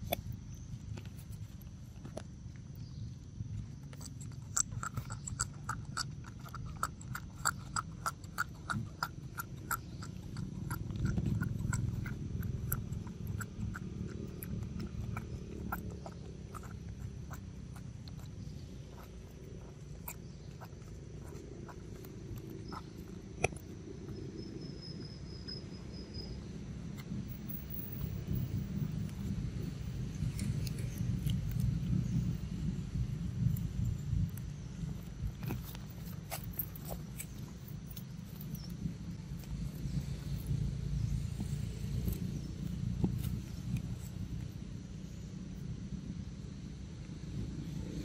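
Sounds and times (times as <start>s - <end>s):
steady low rumble: 0.0s - 48.0s
wet sucking clicks and smacks: 3.8s - 24.8s.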